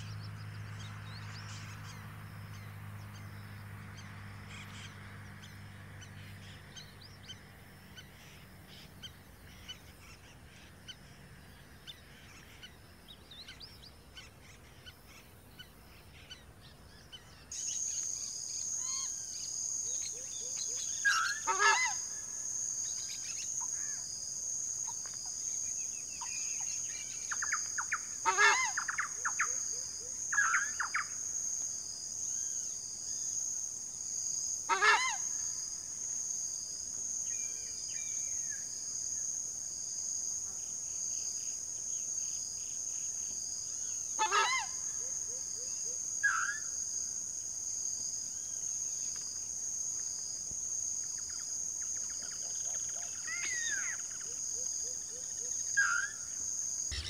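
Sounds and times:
small birds chirping: 0:00.0 - 0:22.0, 0:22.8 - 0:31.2, 0:51.0 - 0:57.0
high-pitched insect drone: 0:51.0 - 0:57.0.

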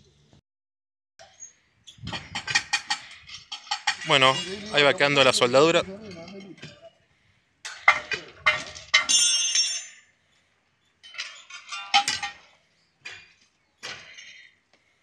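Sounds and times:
steel tools clanging on rail: 0:02.1 - 0:07.0, 0:07.6 - 0:10.1, 0:11.0 - 0:14.5.

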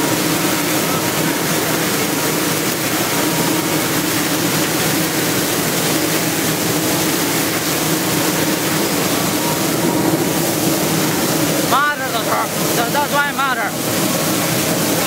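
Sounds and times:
low machine hum: 0:00.0 - 0:15.0
water spraying: 0:00.0 - 0:15.0.

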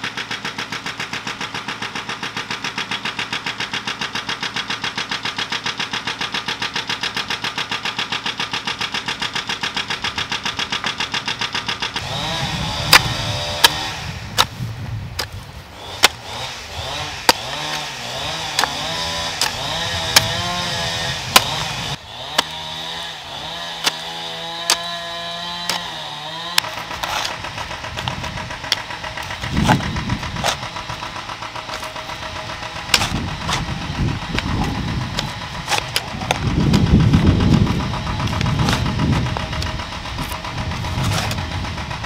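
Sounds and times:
hoe chopping stony soil: 0:00.0 - 0:42.0
small engine running: 0:00.0 - 0:42.0
low rumbling: 0:08.5 - 0:42.0.

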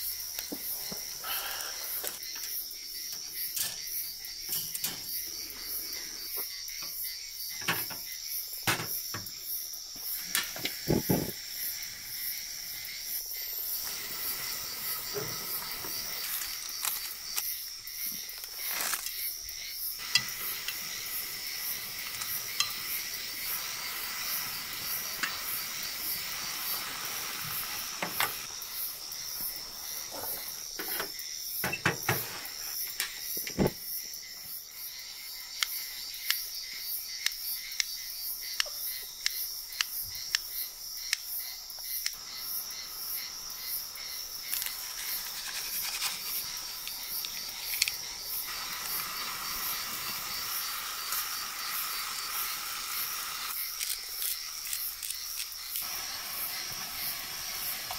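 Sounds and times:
crickets chirping: 0:00.0 - 0:57.9
food sizzling in a frying pan: 0:10.0 - 0:33.4, 0:42.2 - 0:57.9.

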